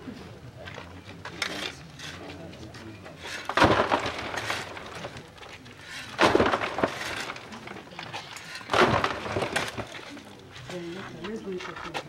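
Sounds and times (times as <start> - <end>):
falling soil rattle: 3.2 - 10.7
shovel scooping earth: 5.8 - 7.6.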